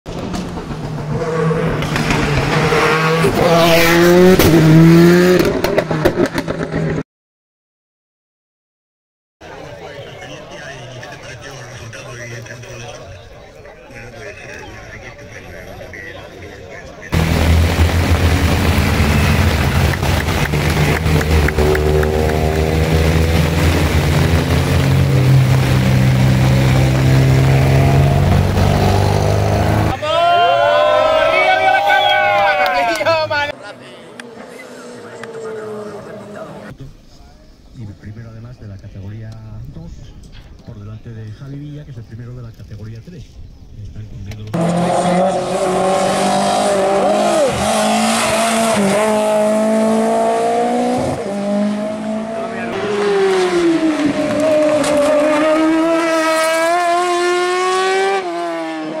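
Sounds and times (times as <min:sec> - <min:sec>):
race car engine at high revs: 0:00.1 - 0:07.0, 0:17.1 - 0:29.9, 0:34.1 - 0:36.7, 0:44.5 - 0:59.0
rain and tyre spray hiss: 0:17.2 - 0:27.5.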